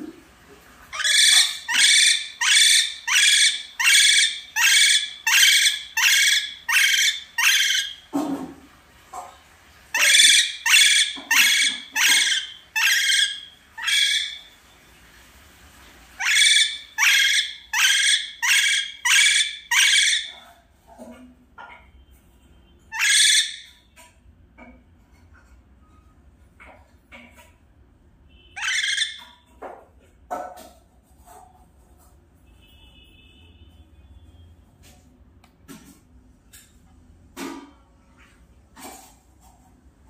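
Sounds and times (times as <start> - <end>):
parakeet screeching: 0.9 - 8.1, 9.9 - 14.6, 16.2 - 20.6, 22.9 - 23.8, 28.6 - 29.4.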